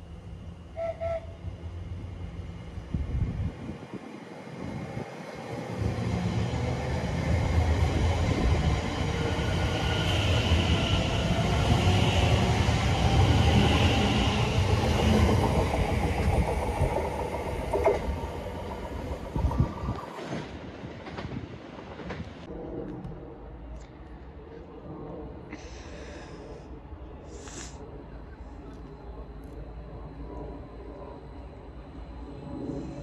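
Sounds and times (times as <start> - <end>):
train wheels rumbling on rails: 0.0 - 23.1.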